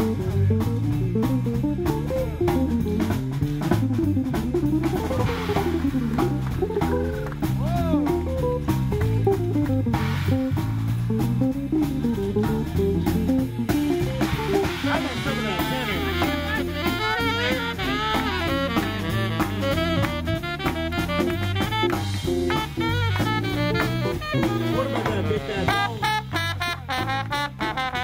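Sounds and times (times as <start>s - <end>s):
drum kit beat: 0.0s - 28.0s
electric bass guitar: 0.0s - 28.0s
swing band playing: 0.0s - 28.0s
horn melody: 4.0s - 8.7s, 13.3s - 28.0s.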